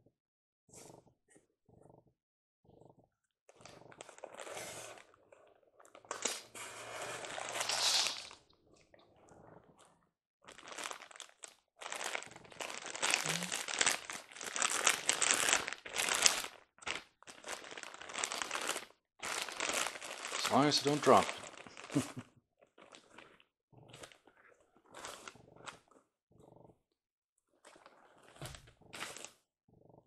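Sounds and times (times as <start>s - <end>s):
plastic bag crinkling: 7.2s - 8.4s, 10.5s - 22.2s
packing tape pulled off: 7.4s - 8.4s.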